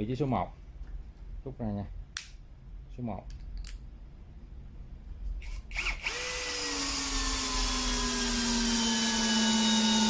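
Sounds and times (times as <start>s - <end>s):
cordless drill driving a screw: 5.4s - 10.0s.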